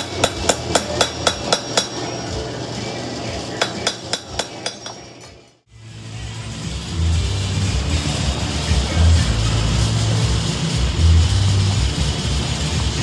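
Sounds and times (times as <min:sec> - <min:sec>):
hammer striking anvil: 0:00.0 - 0:02.4, 0:03.5 - 0:05.5.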